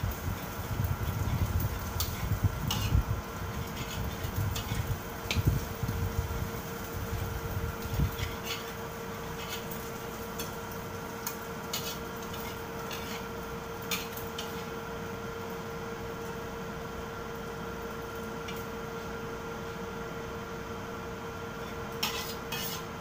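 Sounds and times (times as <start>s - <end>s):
steady hum: 0.0s - 23.0s
spatula scraping a wok: 1.0s - 5.5s, 7.3s - 14.7s, 21.6s - 23.0s.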